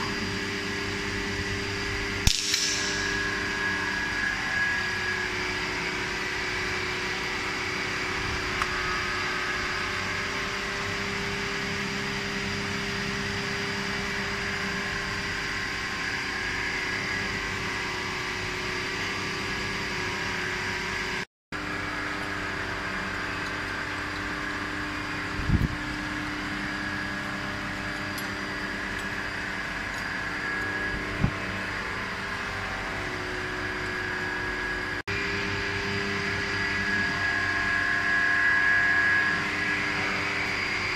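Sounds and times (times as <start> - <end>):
machine humming: 0.0 - 21.0, 21.6 - 40.9.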